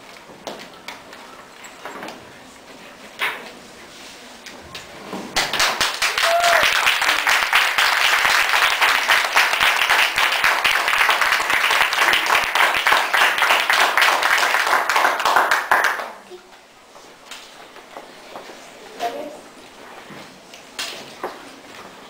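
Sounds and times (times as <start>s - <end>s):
audience applauding: 5.4s - 16.2s.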